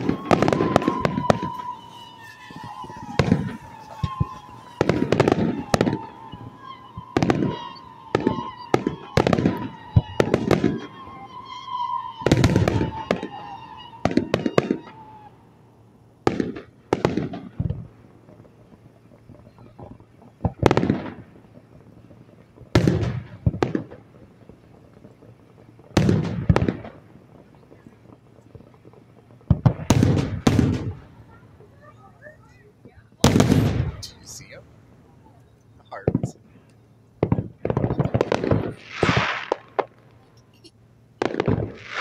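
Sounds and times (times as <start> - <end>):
steady high wavering tone: 0.0 - 14.0
firework shells bursting: 0.0 - 15.5, 33.2 - 42.0.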